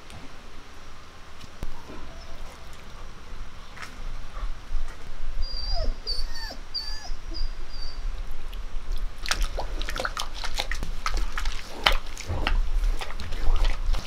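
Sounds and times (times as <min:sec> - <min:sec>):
animal whimpering: 0:01.6 - 0:03.0, 0:05.4 - 0:08.1.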